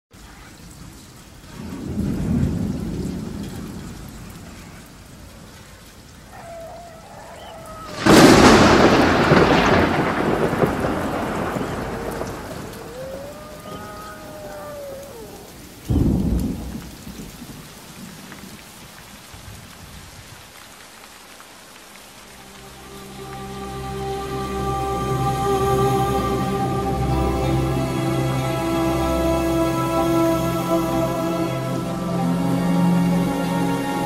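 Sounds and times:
steady rain: 0.1s - 34.0s
thunder cracking and rolling: 1.5s - 4.9s, 6.4s - 18.1s.

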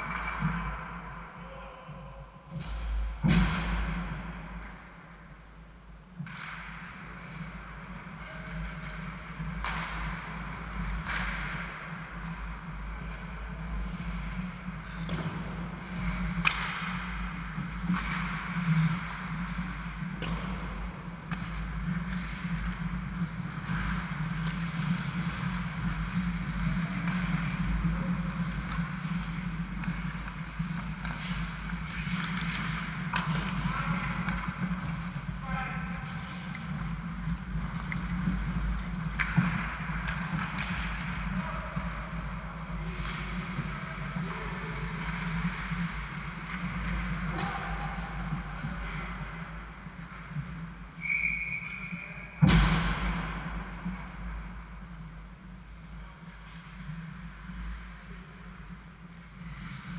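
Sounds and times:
hockey sticks and puck clacking: 0.0s - 1.3s, 6.0s - 59.9s
skates scraping ice: 6.2s - 59.9s.

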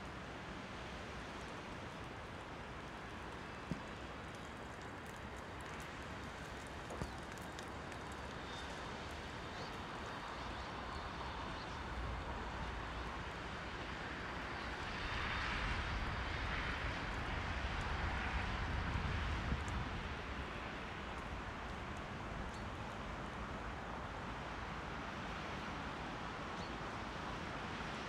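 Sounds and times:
low wind rumble: 7.8s - 25.0s.

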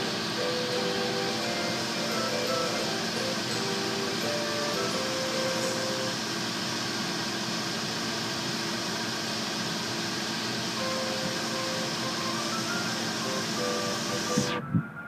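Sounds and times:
car wash machine whirring: 0.0s - 15.0s.

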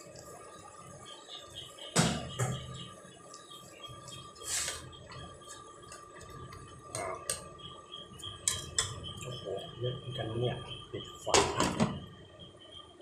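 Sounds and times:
curry bubbling in wok: 0.0s - 9.3s.

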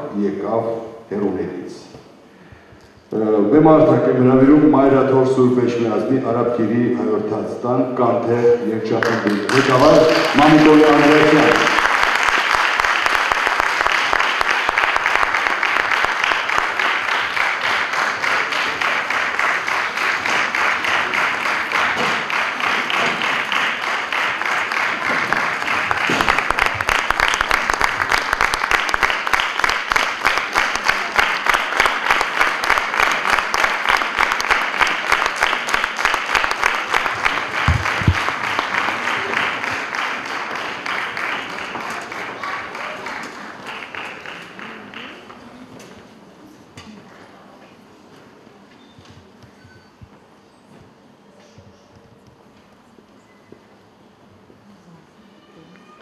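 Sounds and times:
audience applauding: 8.9s - 45.7s.

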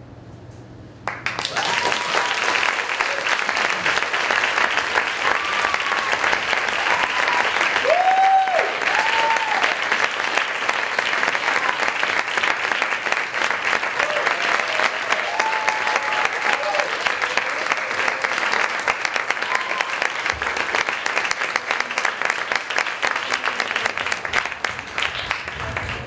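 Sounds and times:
audience applause: 1.0s - 26.0s
voices cheering and whooping: 1.4s - 3.4s, 5.2s - 9.8s, 14.0s - 18.4s, 19.3s - 20.3s.

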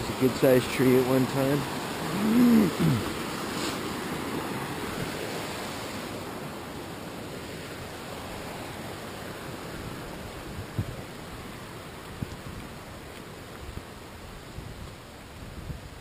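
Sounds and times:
mountain stream rushing: 0.0s - 16.0s
man humming: 2.1s - 3.2s.

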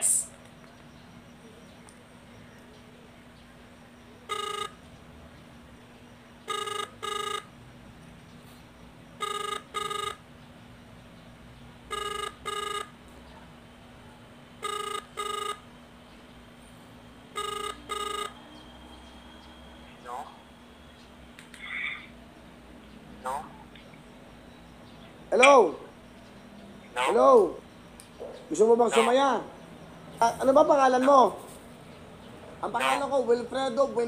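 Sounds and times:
phone ringback beeps: 4.2s - 4.9s, 6.4s - 7.6s, 9.2s - 10.2s, 11.9s - 13.0s, 14.6s - 15.7s, 17.3s - 18.6s.

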